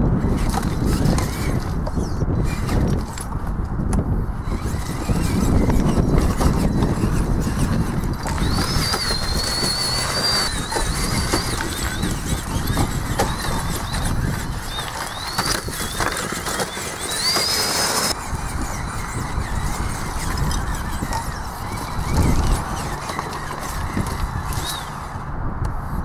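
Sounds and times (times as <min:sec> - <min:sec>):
rc car electric motor whining: 0:00.1 - 0:25.3
tyres clicking on loose stone: 0:05.5 - 0:18.2.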